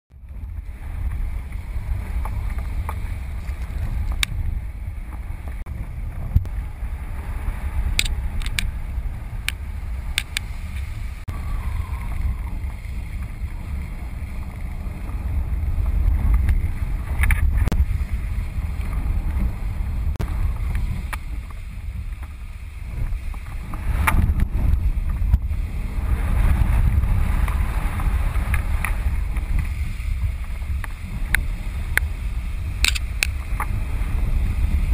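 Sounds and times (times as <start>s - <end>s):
wind buffeting microphone: 0.1s - 34.9s
sharp clicks: 32.8s - 33.4s.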